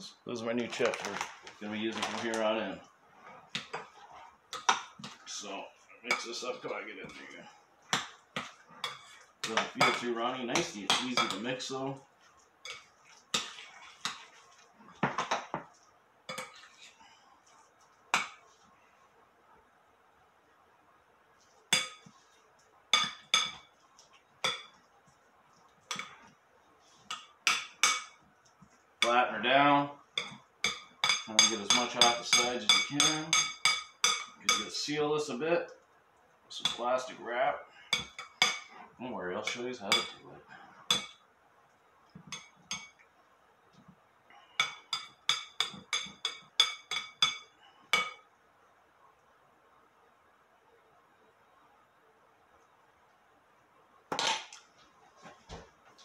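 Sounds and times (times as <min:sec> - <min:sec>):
spoon clinking glass bowl: 0:23.0 - 0:23.7, 0:30.2 - 0:34.7, 0:42.3 - 0:43.0, 0:44.6 - 0:48.2.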